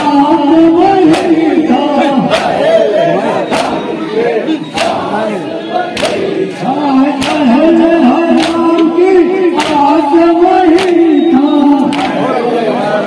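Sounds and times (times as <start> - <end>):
men chanting together: 0.0 - 13.0
chest-beating slaps: 1.1 - 1.5, 2.2 - 2.7, 3.5 - 3.9, 4.7 - 5.1, 5.9 - 6.3, 7.2 - 7.5, 8.4 - 8.9, 9.5 - 10.0, 10.7 - 11.1.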